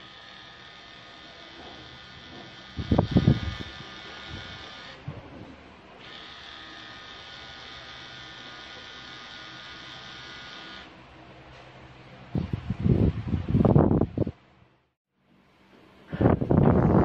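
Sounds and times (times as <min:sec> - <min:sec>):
tattoo machine buzzing: 0:00.0 - 0:05.1, 0:06.0 - 0:10.9.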